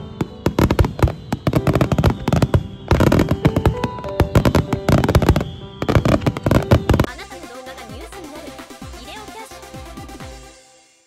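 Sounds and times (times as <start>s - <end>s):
firework shells bursting: 0.0s - 7.1s
firework crackles: 0.0s - 8.8s.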